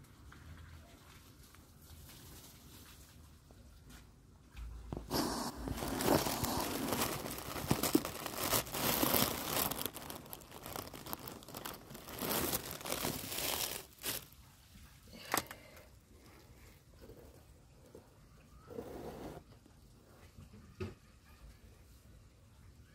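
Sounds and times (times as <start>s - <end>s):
rustling and crinkling: 0.1s - 15.6s.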